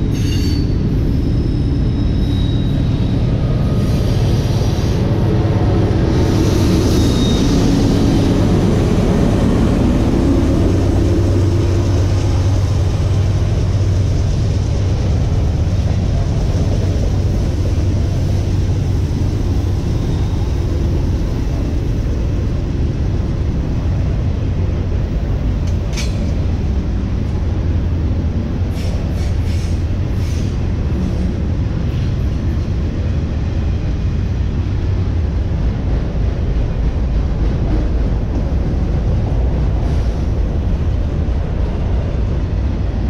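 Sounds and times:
high wheel squeal: 0:00.0 - 0:05.0, 0:06.1 - 0:08.2, 0:19.3 - 0:21.2
train wheels rumbling on rails: 0:00.0 - 0:43.0.

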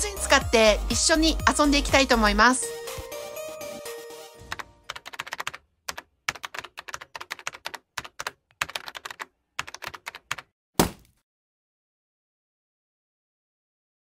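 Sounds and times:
keyboard typing: 0:04.4 - 0:10.5.

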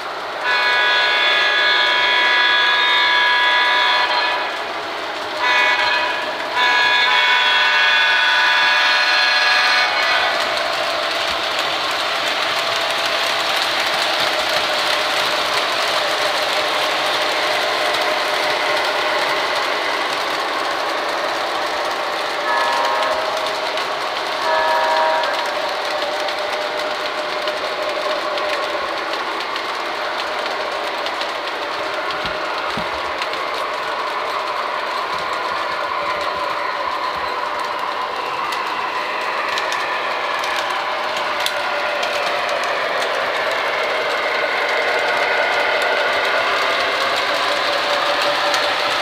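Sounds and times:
model train rolling rattle: 0:00.0 - 0:49.0
model train horn: 0:00.4 - 0:04.6, 0:05.4 - 0:10.5, 0:22.4 - 0:23.7, 0:24.4 - 0:25.7.

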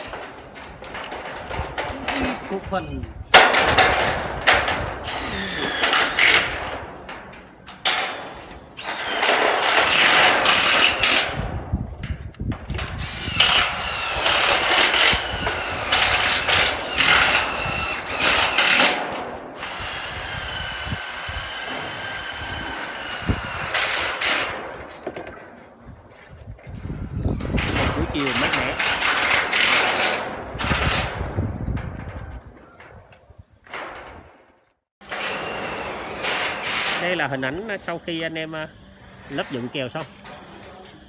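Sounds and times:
power screw gun driving screws into steel: 0:04.5 - 0:06.8, 0:08.8 - 0:11.3, 0:12.7 - 0:24.6, 0:27.6 - 0:31.1, 0:35.0 - 0:37.0.

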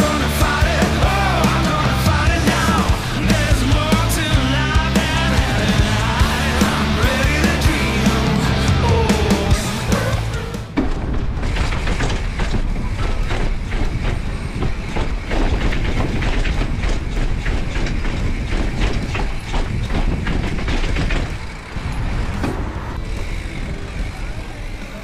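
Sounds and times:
bike rattling: 0:00.0 - 0:25.0
bicycle clattering down stone steps: 0:10.6 - 0:25.0.

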